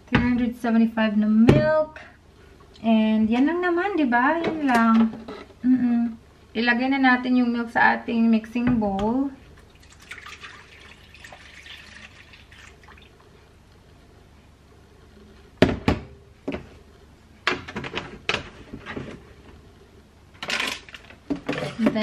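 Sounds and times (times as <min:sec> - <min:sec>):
milk pouring into a bowl: 0:09.6 - 0:13.3.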